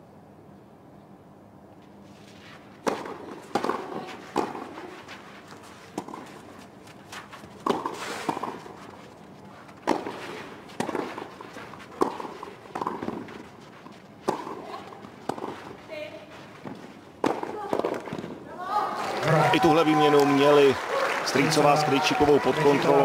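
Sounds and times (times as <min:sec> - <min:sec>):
tennis ball struck by rackets: 0:02.8 - 0:05.2, 0:05.9 - 0:06.4, 0:07.3 - 0:09.0, 0:09.8 - 0:15.8, 0:16.6 - 0:18.4.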